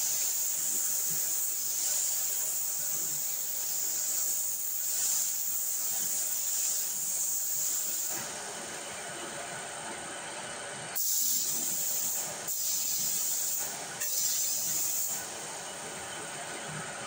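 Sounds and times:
spray gun hissing bursts: 0:00.0 - 0:08.2, 0:11.0 - 0:15.6.

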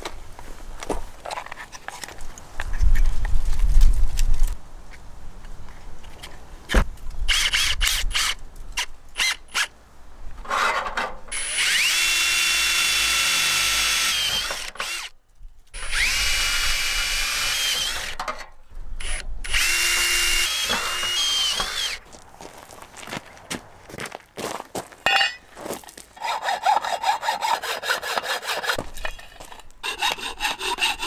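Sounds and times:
cordless drill whining through metal: 0:11.3 - 0:15.1, 0:15.8 - 0:18.3, 0:19.0 - 0:22.0.

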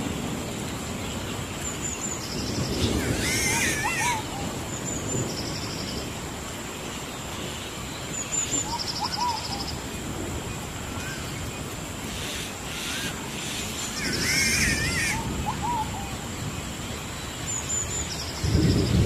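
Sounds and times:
steady hiss: 0:00.0 - 0:19.0
birds whistling calls: 0:01.6 - 0:06.0, 0:08.2 - 0:09.9, 0:10.9 - 0:16.2
fast high bird trill: 0:12.1 - 0:15.2.

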